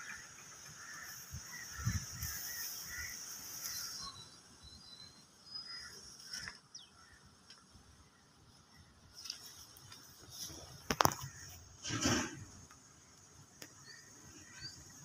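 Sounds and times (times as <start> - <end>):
high insect drone: 0.0 - 4.2
bird chirps: 3.6 - 7.0.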